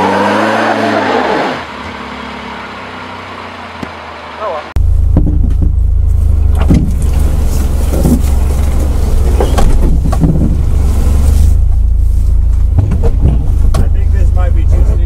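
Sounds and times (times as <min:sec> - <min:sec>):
car engine droning: 0:00.0 - 0:15.0
car knocks and rattles: 0:05.0 - 0:15.0.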